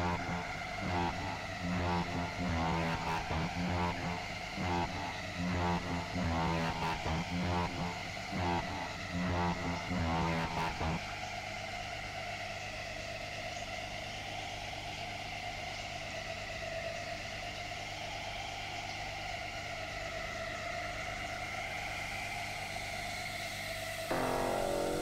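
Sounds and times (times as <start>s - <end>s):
aquarium pumps humming: 0.0s - 10.8s, 24.1s - 25.0s.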